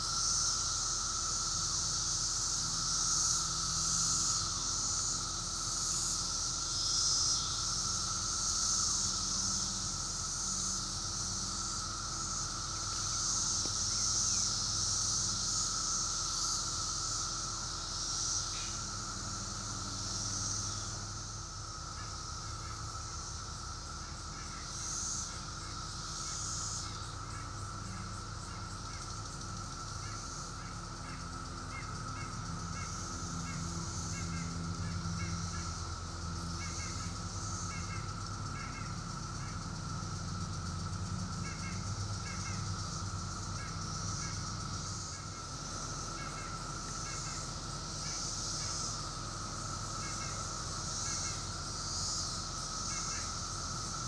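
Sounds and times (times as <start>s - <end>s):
cicada chorus drone: 0.0s - 54.0s.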